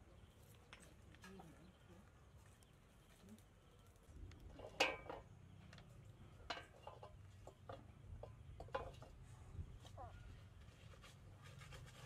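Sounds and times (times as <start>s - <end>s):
skewers and fish knocking in metal basin: 6.4s - 9.2s.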